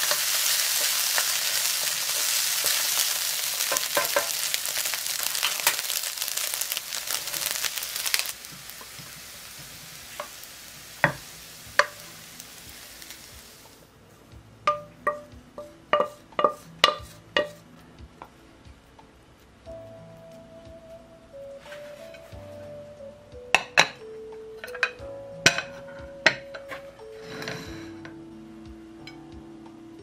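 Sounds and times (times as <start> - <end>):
rice sizzling in a frying pan: 0.0 - 13.9, 14.6 - 17.6
sharp knocks of a pan: 3.7 - 4.4, 11.0 - 12.0, 14.7 - 17.6, 23.5 - 24.0, 24.6 - 26.7
wooden spatula scraping a pan: 14.7 - 17.6, 21.6 - 22.6, 26.6 - 28.0.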